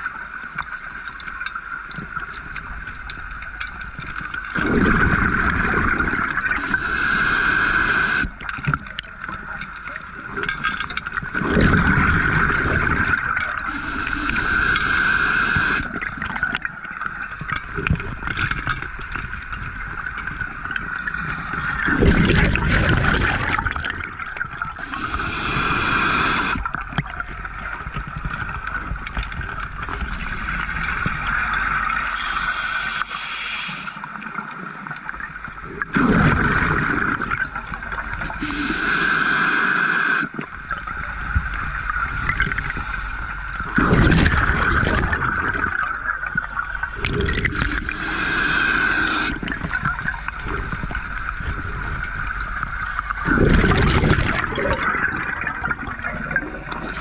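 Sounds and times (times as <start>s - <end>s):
exhaled bubbles gurgling: 0.0s - 57.0s
regulator breathing hiss: 6.6s - 8.3s, 12.5s - 15.9s, 24.8s - 26.7s, 32.1s - 34.0s, 38.4s - 40.4s, 42.2s - 43.3s, 46.2s - 49.5s, 52.8s - 53.6s.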